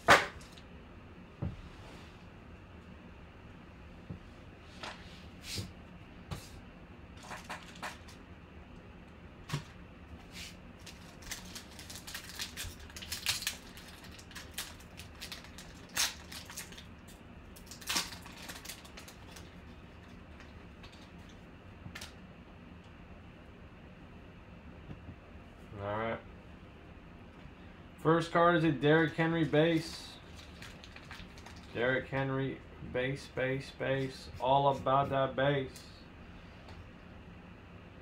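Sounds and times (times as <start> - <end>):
foil wrapper crinkling and tearing: 10.8 - 21.1, 30.2 - 31.8.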